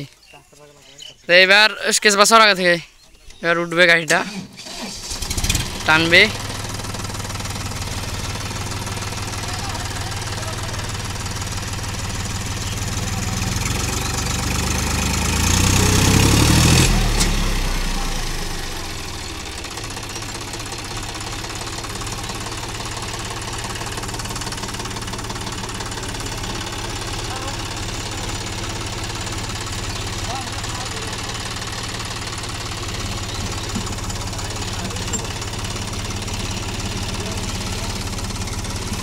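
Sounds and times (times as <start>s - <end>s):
tractor diesel engine revving: 3.8s - 39.0s.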